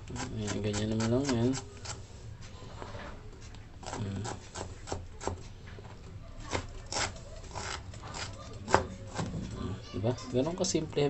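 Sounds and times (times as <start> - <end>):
knife chopping on plastic board: 6.5 - 9.4.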